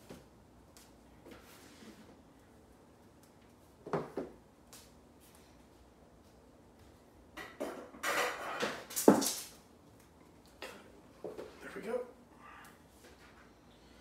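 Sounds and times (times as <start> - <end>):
objects clattering and rustling: 7.4 - 9.6.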